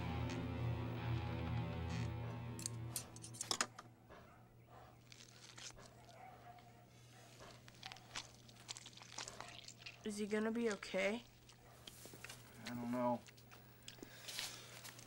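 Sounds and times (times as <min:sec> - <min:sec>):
gauze rustling: 0:05.0 - 0:06.3, 0:07.1 - 0:12.6.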